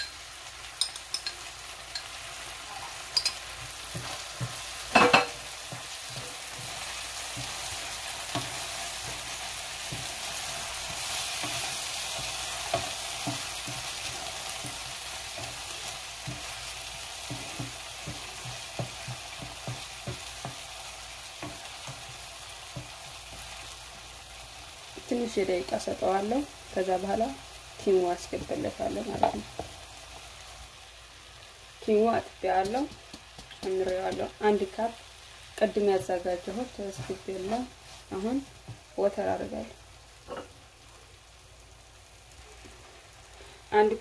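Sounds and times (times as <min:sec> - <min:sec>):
onions sizzling in oil: 0:00.0 - 0:44.0
wooden spatula scraping a pan: 0:02.7 - 0:20.6, 0:36.0 - 0:38.8.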